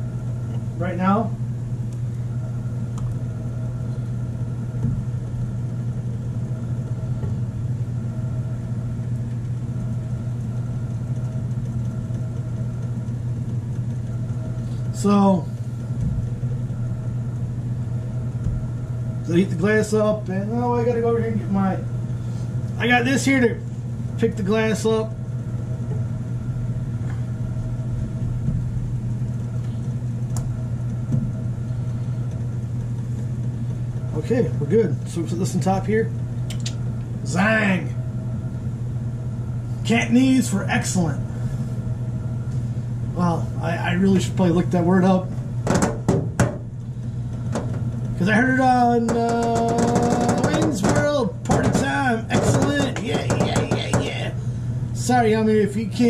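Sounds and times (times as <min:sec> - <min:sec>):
low motor hum: 0:00.0 - 0:56.0
sharp click: 0:36.5 - 0:36.8.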